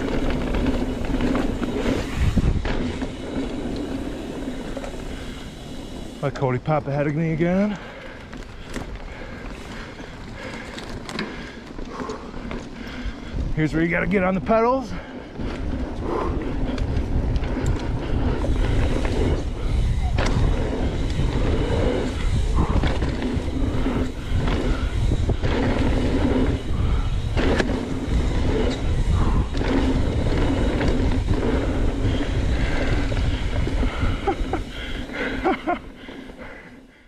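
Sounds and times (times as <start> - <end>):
wind rumble on microphone: 0.0 - 5.0, 13.1 - 35.8
bike tyres crunching over dirt: 0.0 - 37.0
bike knocks and rattles: 16.8 - 35.8.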